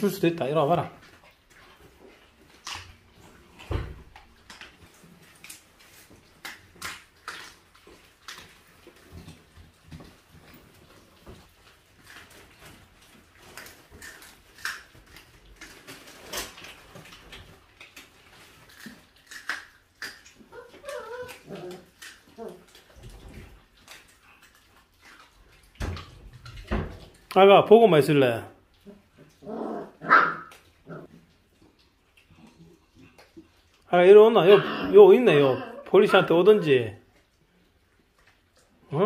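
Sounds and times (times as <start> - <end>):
dog chewing meat: 0.9 - 27.3.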